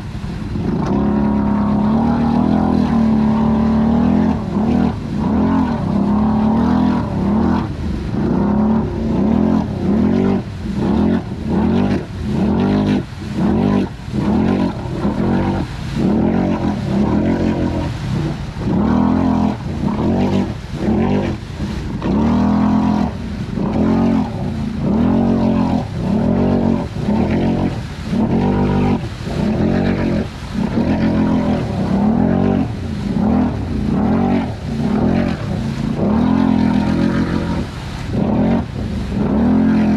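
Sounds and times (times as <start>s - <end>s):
atv engine revving: 0.0s - 39.9s.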